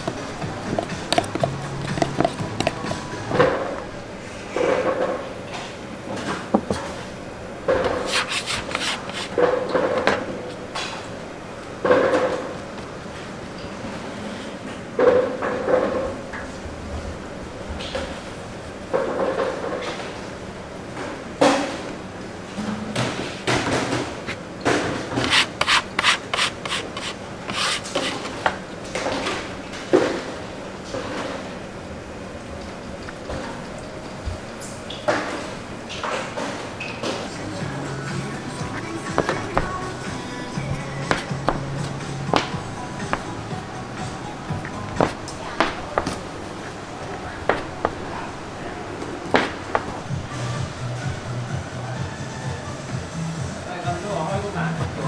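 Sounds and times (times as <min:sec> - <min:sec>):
dough rubbed and pushed by hand: 0:07.9 - 0:09.4, 0:25.2 - 0:28.4.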